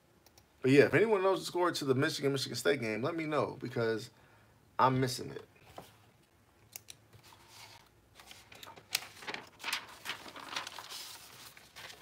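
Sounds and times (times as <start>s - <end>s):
papers rustling: 7.2s - 12.0s.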